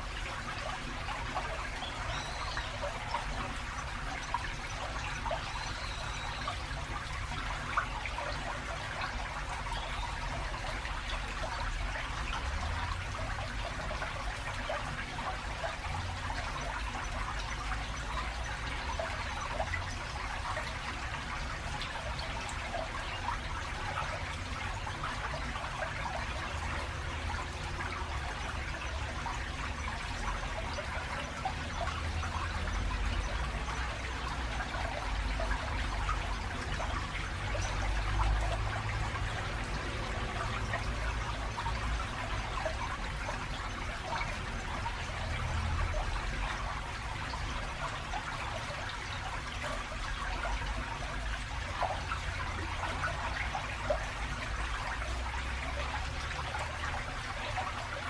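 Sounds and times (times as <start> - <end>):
river trickling and babbling: 0.0 - 58.0
road traffic rumble: 23.3 - 58.0.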